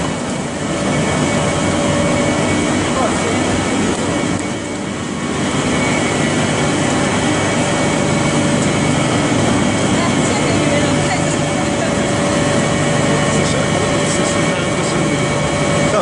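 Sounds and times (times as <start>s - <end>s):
machinery drone: 0.0s - 16.0s.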